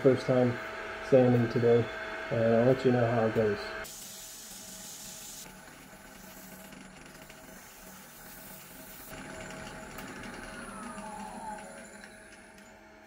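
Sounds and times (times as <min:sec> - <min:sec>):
sandpaper hissing on wood: 0:03.9 - 0:05.5
wood lathe humming: 0:05.5 - 0:13.0.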